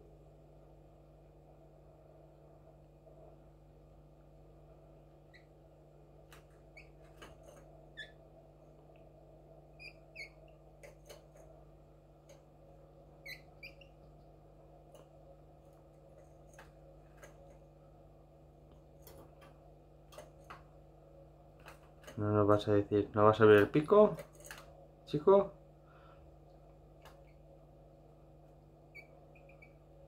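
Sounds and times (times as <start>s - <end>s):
steady low hum: 0.0s - 30.0s.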